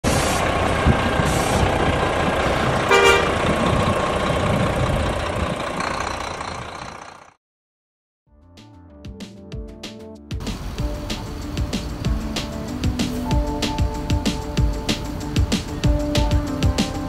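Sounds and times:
vehicle noise: 0.0s - 7.4s, 10.4s - 17.0s
car horn toot: 2.8s - 3.5s.

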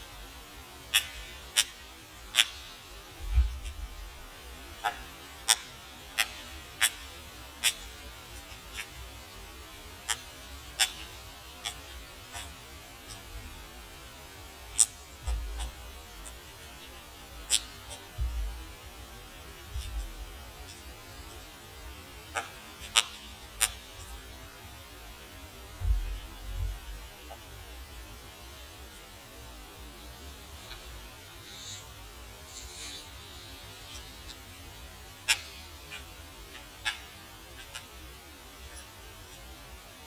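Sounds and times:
steady low hum: 0.0s - 40.0s
dull low thuds: 3.2s - 4.1s, 18.2s - 18.7s, 25.8s - 27.0s.

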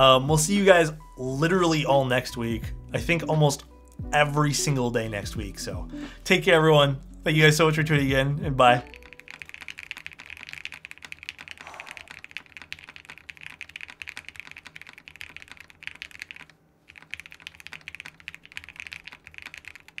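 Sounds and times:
mechanical keyboard typing: 8.9s - 20.0s.

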